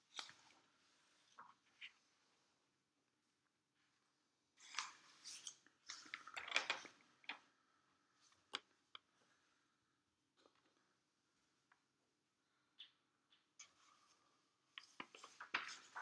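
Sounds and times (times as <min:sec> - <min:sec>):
light ticks of paper settling: 0:14.8 - 0:16.0
paper pages rustling: 0:14.8 - 0:16.0.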